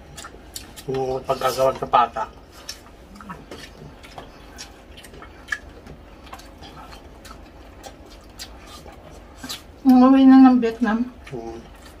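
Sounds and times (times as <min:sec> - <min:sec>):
mouth clicks and lip smacks: 0:00.0 - 0:01.2, 0:02.6 - 0:09.9
people chewing crispy food: 0:00.0 - 0:12.0.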